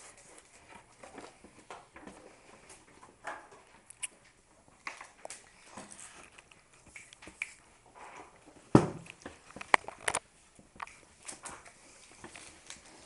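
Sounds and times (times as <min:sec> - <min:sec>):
paper rustling: 0:10.8 - 0:13.0.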